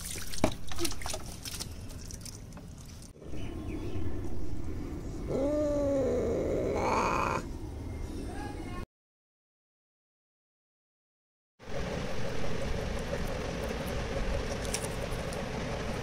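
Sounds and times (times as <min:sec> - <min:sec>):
cat meowing in distress: 0:05.3 - 0:07.5.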